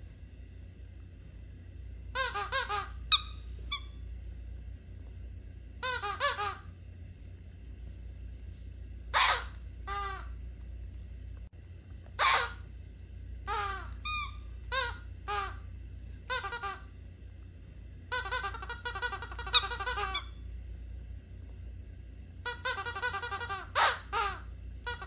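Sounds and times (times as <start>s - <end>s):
rubber squeaky toy squeaking: 2.2s - 4.0s, 5.8s - 6.6s, 9.2s - 10.3s, 12.2s - 12.6s, 13.5s - 15.6s, 16.3s - 16.8s, 18.1s - 20.4s, 22.5s - 25.0s.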